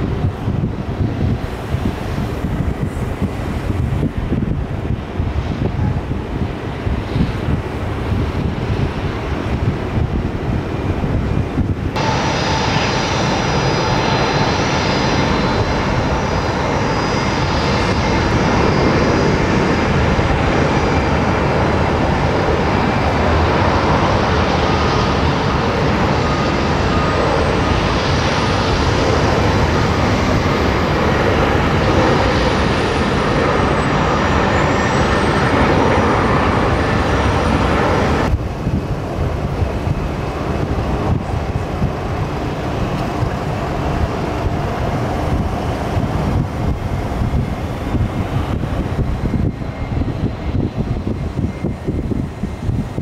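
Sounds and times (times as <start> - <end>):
jet airliner on approach: 0.0 - 53.0
jet engines running: 0.0 - 53.0
high wavering whine: 11.9 - 39.0.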